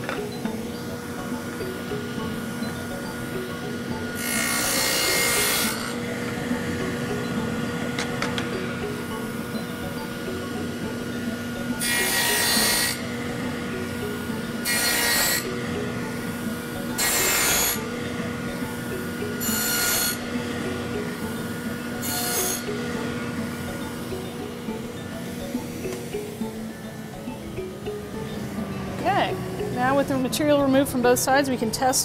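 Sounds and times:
table saw running: 0.0s - 30.4s
saw blade cutting wood: 4.2s - 6.0s, 11.8s - 13.0s, 14.6s - 15.4s, 17.0s - 17.9s, 19.4s - 20.2s, 22.0s - 22.7s.

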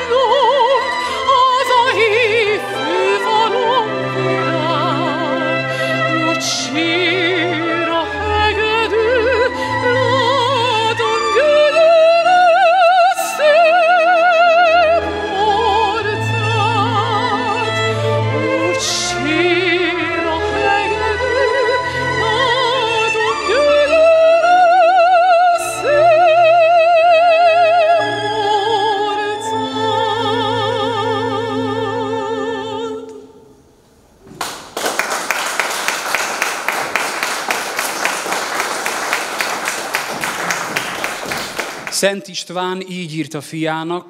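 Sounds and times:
woman singing operatically: 0.0s - 33.4s
audience applauding: 34.3s - 42.3s.

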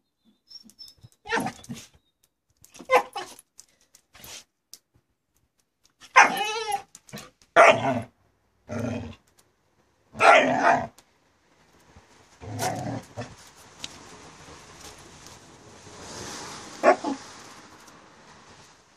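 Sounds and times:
small dog barking: 7.6s - 8.0s, 10.2s - 10.9s, 16.8s - 17.2s
faint hiss: 13.3s - 18.9s.

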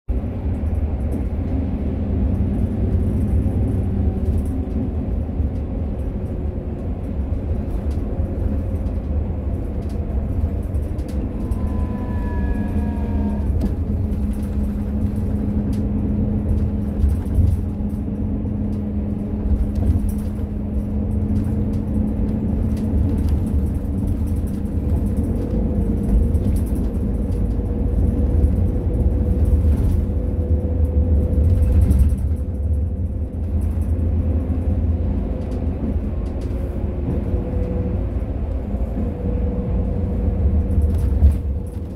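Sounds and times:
bus engine and road rumble: 0.0s - 41.9s
rising whine: 11.1s - 14.1s.

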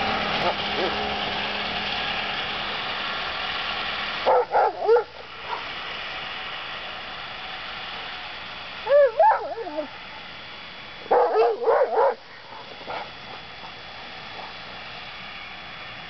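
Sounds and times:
snowmobile engine running: 0.0s - 1.8s, 8.9s - 9.9s, 11.0s - 14.8s
dog barking whinily: 4.2s - 5.7s, 8.8s - 10.0s, 11.0s - 13.5s.

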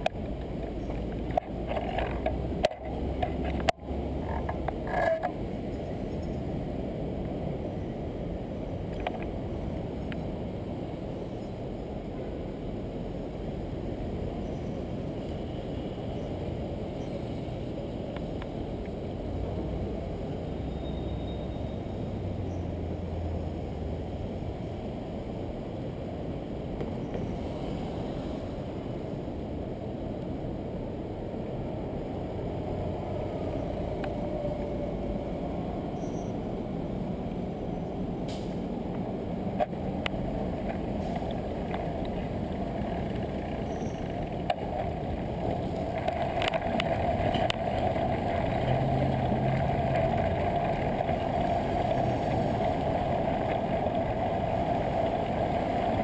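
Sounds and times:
city street traffic rumble: 0.0s - 56.0s
wind on microphone: 26.2s - 56.0s.

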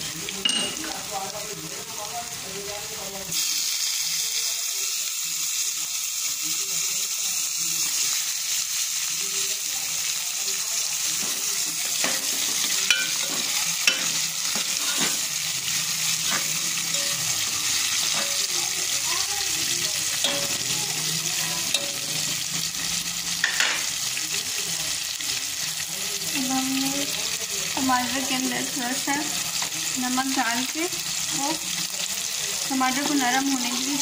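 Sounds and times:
food sizzling in hot oil: 0.0s - 34.0s
steel spoon clinking against pot: 0.4s - 1.0s, 11.9s - 15.3s, 16.2s - 18.6s, 20.2s - 20.8s, 21.6s - 22.5s.

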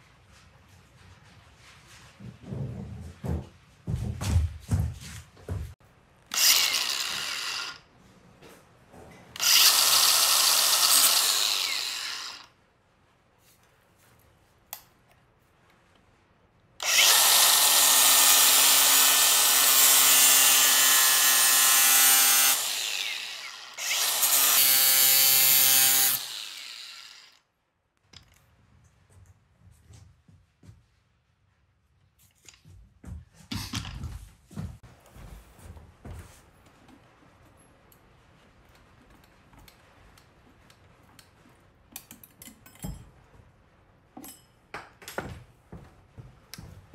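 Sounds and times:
angle grinder grinding metal: 6.3s - 7.8s, 9.4s - 12.5s, 16.8s - 27.4s.

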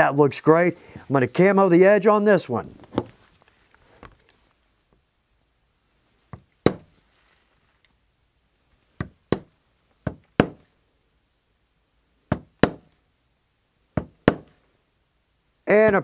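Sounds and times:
maul striking metal stamp: 10.1s - 10.6s, 12.3s - 12.9s, 14.0s - 14.5s.

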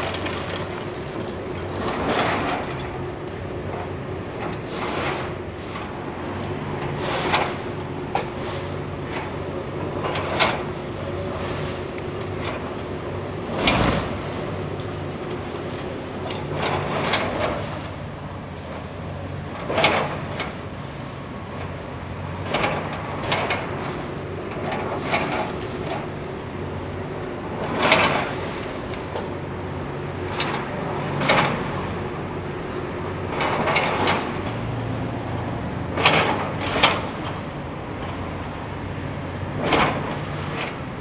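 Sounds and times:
timber cracking and splintering: 0.0s - 1.6s
excavator diesel engine running: 0.0s - 41.0s.

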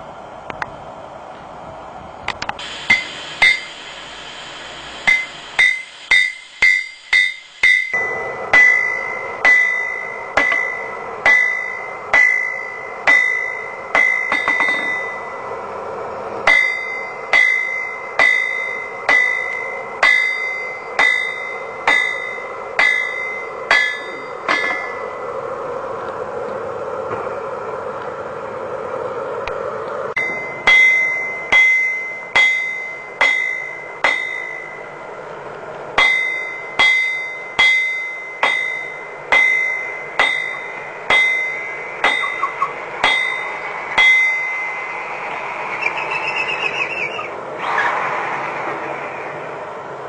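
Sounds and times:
steady hum: 0.0s - 50.0s
hammer striking metal on anvil: 2.9s - 3.8s, 5.0s - 15.2s, 16.5s - 25.1s, 30.2s - 34.8s, 36.0s - 44.8s.

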